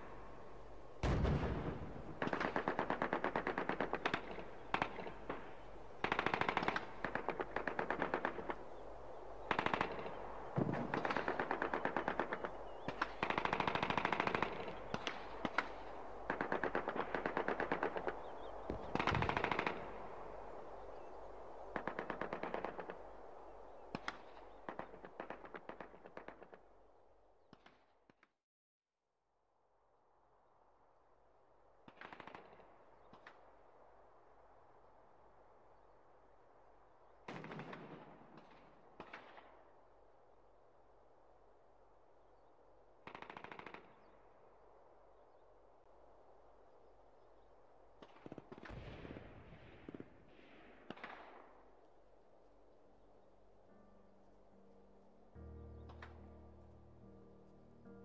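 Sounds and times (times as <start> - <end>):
single gunshots: 1.0 - 8.6
machine-gun fire bursts: 1.0 - 8.8, 9.5 - 20.0, 21.8 - 23.0.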